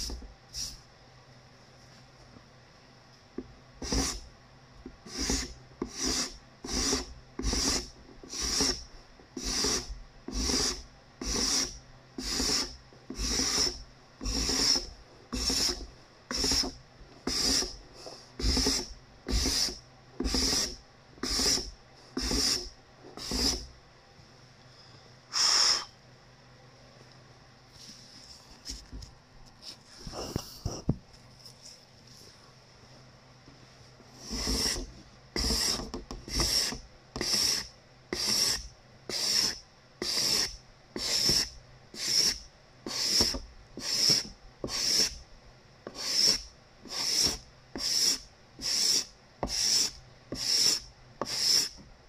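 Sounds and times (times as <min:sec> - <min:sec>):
card scraper scraping wood: 0:05.1 - 0:08.8, 0:09.4 - 0:23.7, 0:34.2 - 0:45.2, 0:45.9 - 0:51.8.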